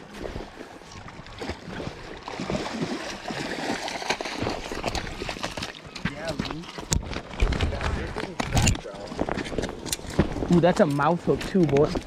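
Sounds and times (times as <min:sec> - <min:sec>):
fish thrashing and splashing in water: 0:00.0 - 0:08.4.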